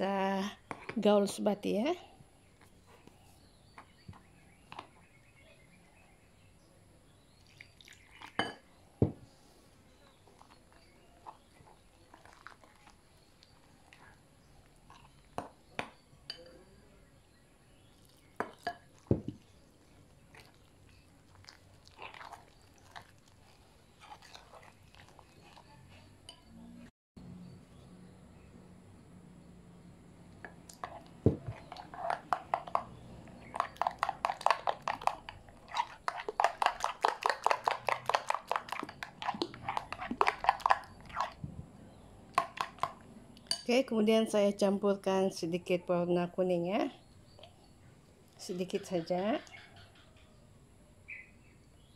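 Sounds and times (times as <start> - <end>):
spoon stirring thick batter: 0.4 - 1.4, 2.3 - 26.8, 30.1 - 45.0
knocks and clinks against glass bowl: 8.4 - 9.2, 42.4 - 43.8
dough squishing: 10.2 - 15.9, 17.9 - 26.2, 30.4 - 41.6.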